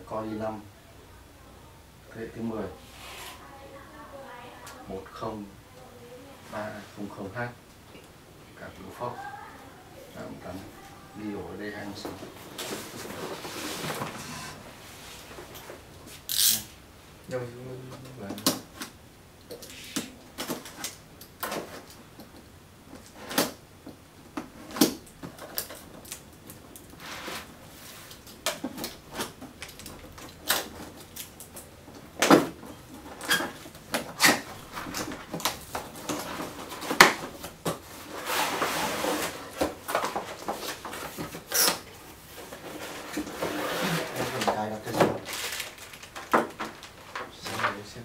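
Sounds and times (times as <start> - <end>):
knife slitting box tape: 16.3 - 16.6.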